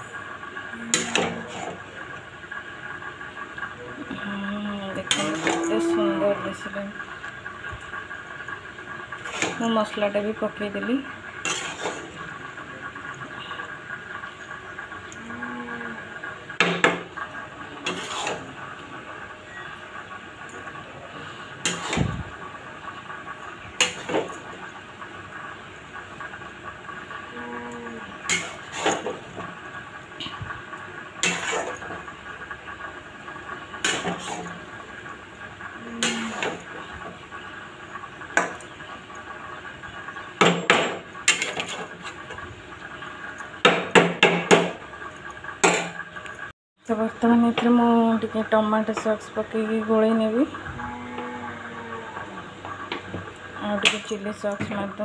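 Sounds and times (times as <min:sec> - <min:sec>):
spatula scraping a metal pan: 0:05.1 - 0:06.0, 0:09.2 - 0:09.6, 0:11.4 - 0:12.1, 0:17.8 - 0:18.5, 0:21.6 - 0:22.0, 0:28.3 - 0:29.2, 0:31.2 - 0:31.9, 0:33.8 - 0:34.5, 0:36.0 - 0:36.6, 0:41.3 - 0:42.2
spatula clanking against a wok: 0:31.2 - 0:32.0, 0:33.8 - 0:34.4.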